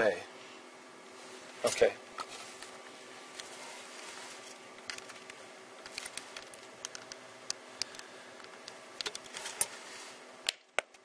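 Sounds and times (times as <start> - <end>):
plastic packaging crinkling and clicking: 4.7 - 7.2, 7.8 - 9.7.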